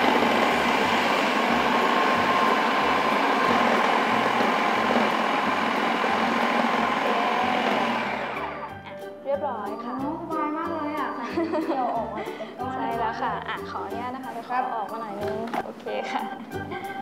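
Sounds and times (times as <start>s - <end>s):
food processor motor whirring: 0.0s - 8.8s.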